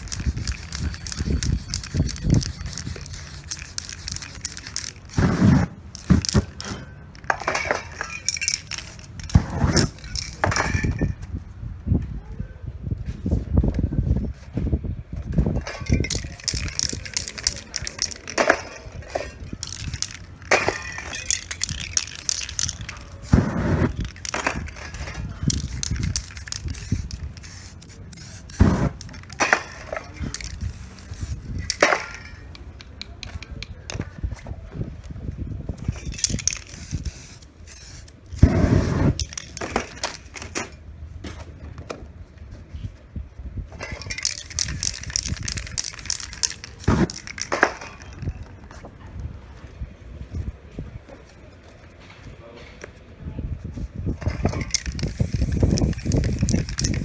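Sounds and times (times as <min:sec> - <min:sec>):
spray paint can hissing: 0:00.0 - 0:06.6, 0:08.2 - 0:10.4, 0:15.9 - 0:18.5, 0:19.5 - 0:29.4, 0:30.2 - 0:33.4, 0:36.0 - 0:40.2, 0:44.0 - 0:48.4, 0:54.2 - 0:57.0.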